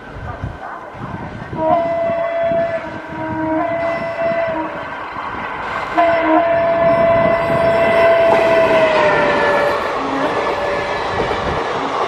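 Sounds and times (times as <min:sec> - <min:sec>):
train rumbling on track: 0:00.0 - 0:12.0
locomotive horn blasts: 0:01.5 - 0:04.8, 0:06.0 - 0:11.0.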